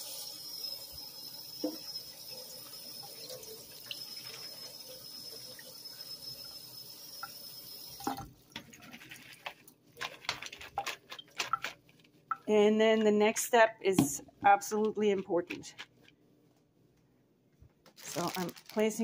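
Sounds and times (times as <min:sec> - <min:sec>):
tap water running into sink: 0:00.0 - 0:09.6.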